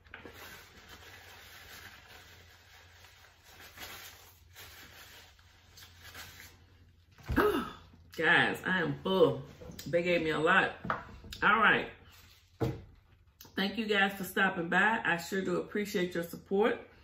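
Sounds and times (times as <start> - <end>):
paper napkin rustling: 0.0 - 7.1.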